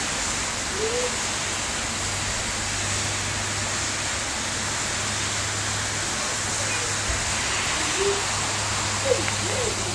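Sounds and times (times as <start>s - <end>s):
heavy rain pouring: 0.0s - 9.9s.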